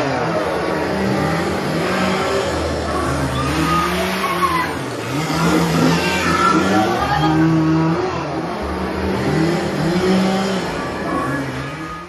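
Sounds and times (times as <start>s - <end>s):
chainsaw engine revving: 0.0s - 12.0s.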